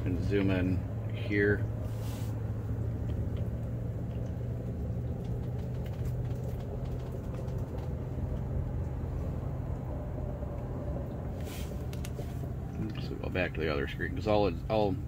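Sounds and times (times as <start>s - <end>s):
low mechanical machine hum: 0.0s - 15.0s
faint irregular ticks: 3.0s - 8.5s.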